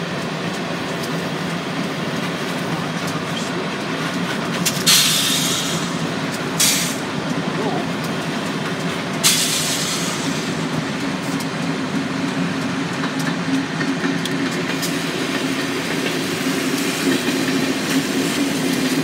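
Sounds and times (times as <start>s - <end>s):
car road noise: 0.0s - 16.3s
train rolling on rails: 0.0s - 19.0s
burst of hiss: 4.9s - 6.0s, 6.6s - 7.0s, 9.2s - 10.6s.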